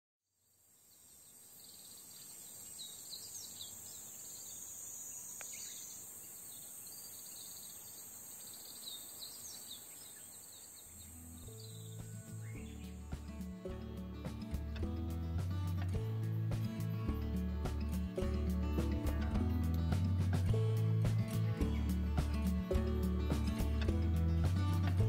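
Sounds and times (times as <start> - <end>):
insects droning: 0.3 - 19.2
bird chirps: 0.9 - 13.8, 21.2 - 23.9
background music: 11.2 - 25.0.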